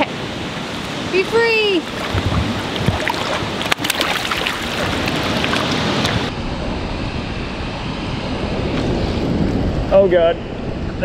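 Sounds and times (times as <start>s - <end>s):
river water rushing: 0.0s - 6.3s
wind on microphone: 0.0s - 11.0s
fish splashing in shallows: 1.8s - 6.3s.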